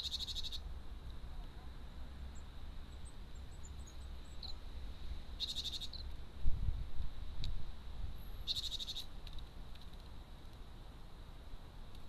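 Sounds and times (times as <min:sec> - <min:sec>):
songbird rapid trill: 0:00.0 - 0:00.7, 0:05.4 - 0:06.1, 0:08.4 - 0:09.1
faint high chirps: 0:05.4 - 0:06.1.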